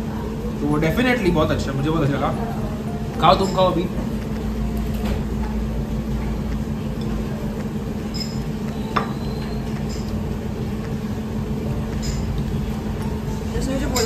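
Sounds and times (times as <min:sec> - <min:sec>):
restaurant low hum: 0:00.0 - 0:14.0
dishes clinking: 0:03.1 - 0:10.9, 0:11.8 - 0:14.0.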